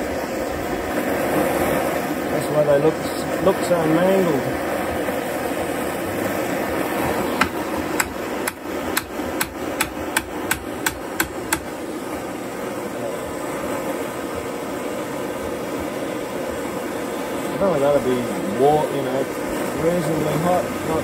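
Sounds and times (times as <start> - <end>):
propane torch hissing: 0.0 - 21.0
hammer striking nail: 7.4 - 11.7.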